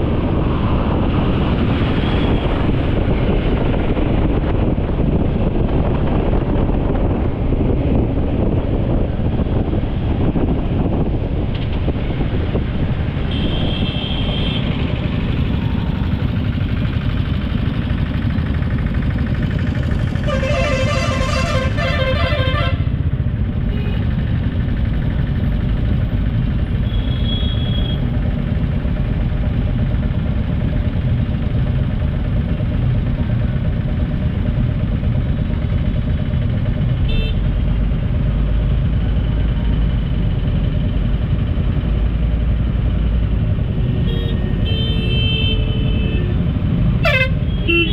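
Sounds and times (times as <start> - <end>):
traffic rumble: 0.0 - 47.9
vehicle horn honking: 13.3 - 14.7, 20.2 - 22.9, 44.0 - 46.4, 47.0 - 47.9.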